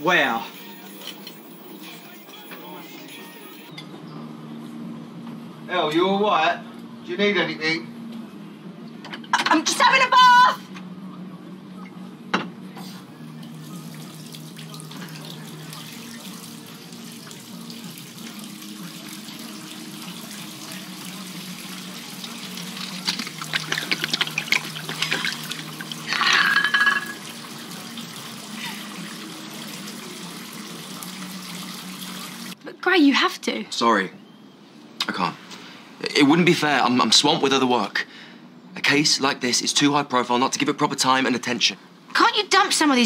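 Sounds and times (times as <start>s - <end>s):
tap water running: 0.0s - 3.7s, 13.3s - 32.6s.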